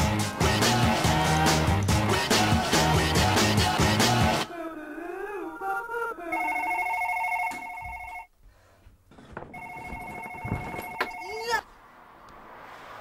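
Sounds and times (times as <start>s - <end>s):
electronic telephone ringing: 6.3s - 8.3s, 9.5s - 11.5s.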